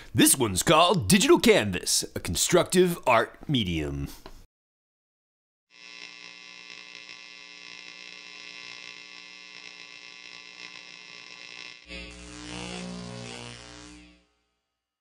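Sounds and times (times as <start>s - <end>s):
electric hum with stacked tones: 5.8s - 14.3s.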